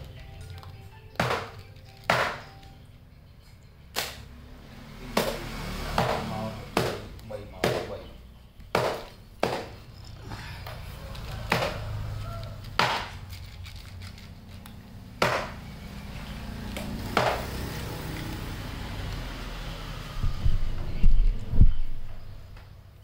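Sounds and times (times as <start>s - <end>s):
cat crunching dry food: 0.0s - 2.6s, 12.1s - 15.2s, 16.5s - 19.3s.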